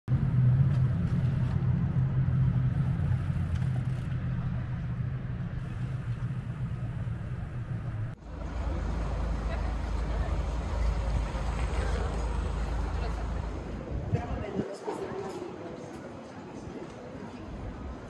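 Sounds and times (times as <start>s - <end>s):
vehicle engine hum and rumble: 0.1s - 14.2s.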